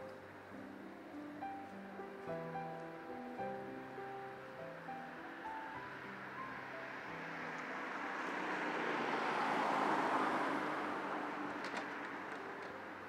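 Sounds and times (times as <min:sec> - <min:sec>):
car passing by: 0:03.0 - 0:13.0.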